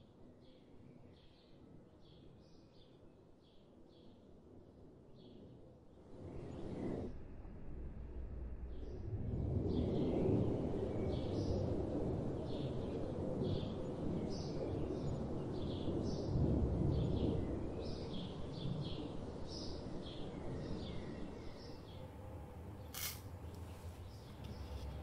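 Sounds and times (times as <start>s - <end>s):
steady low rumble: 7.1s - 13.4s
small bird chirping: 22.8s - 25.0s.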